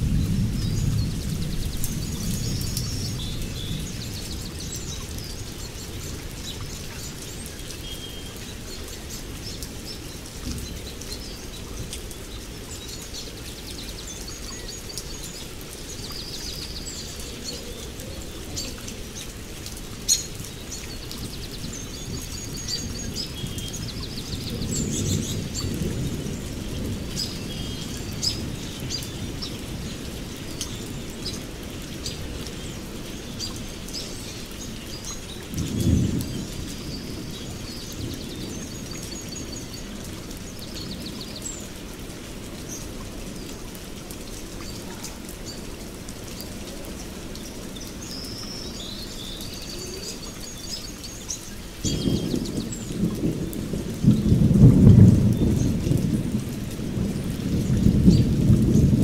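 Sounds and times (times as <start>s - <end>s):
distant thunder rumble: 0.0s - 7.2s, 20.9s - 30.6s, 35.1s - 41.8s, 51.7s - 59.0s
steady rain: 0.0s - 59.0s
birds chirping and trilling: 0.1s - 54.4s.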